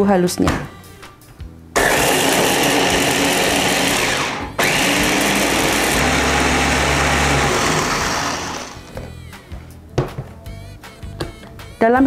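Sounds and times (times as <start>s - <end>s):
electric food chopper motor: 1.8s - 9.0s.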